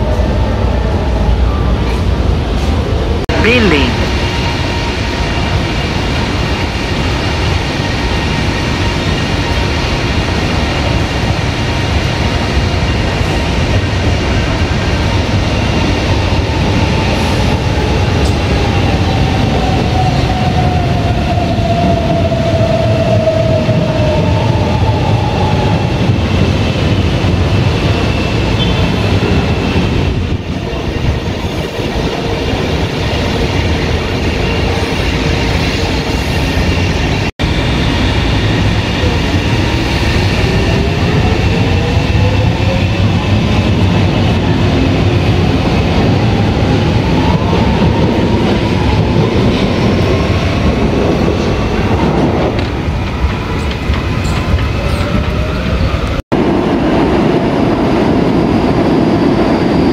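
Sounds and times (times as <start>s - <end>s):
train wheels rumbling on track: 0.0s - 59.9s.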